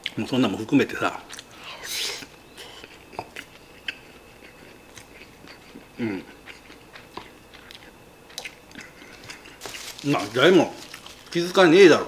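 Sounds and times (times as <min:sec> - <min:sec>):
quiet chewing: 0:01.1 - 0:11.4
person murmuring: 0:06.0 - 0:06.3.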